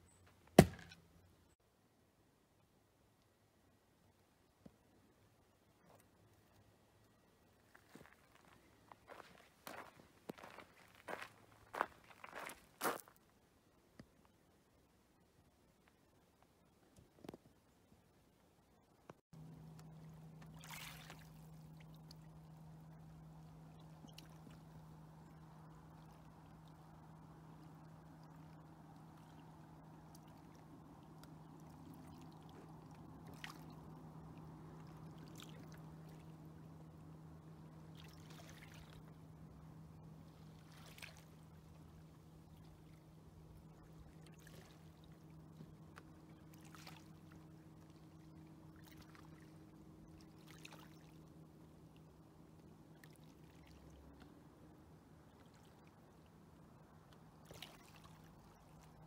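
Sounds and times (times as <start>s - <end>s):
low steady hum: 0.0s - 59.0s
water lapping: 19.4s - 59.0s
soft water splash: 19.8s - 22.4s, 23.7s - 36.5s, 37.9s - 39.2s, 40.3s - 41.8s, 44.1s - 51.2s, 57.1s - 59.0s.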